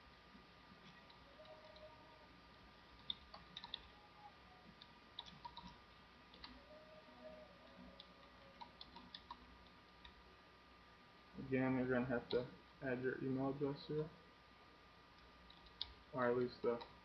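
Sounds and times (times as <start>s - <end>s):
keyboard keystroke clicks: 3.0s - 3.9s, 8.0s - 9.4s.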